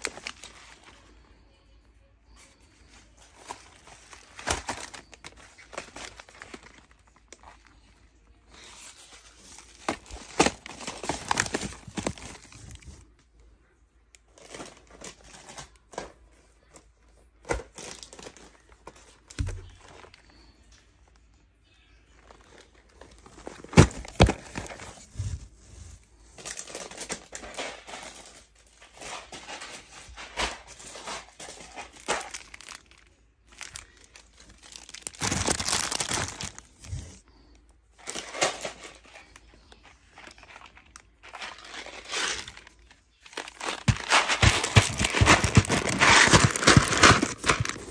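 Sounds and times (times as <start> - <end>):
plastic wrappers crinkling: 0.0 - 1.2, 2.3 - 13.1, 14.1 - 16.8, 17.4 - 21.4, 22.1 - 47.9
cardboard boxes rustling and knocking: 3.5 - 5.1, 9.7 - 12.9, 23.1 - 25.6, 43.4 - 47.9.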